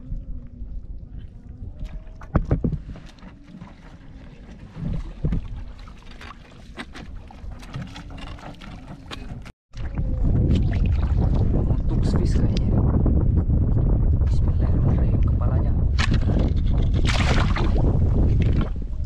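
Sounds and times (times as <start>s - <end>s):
water sloshing and splashing: 0.0s - 11.9s, 16.0s - 19.0s.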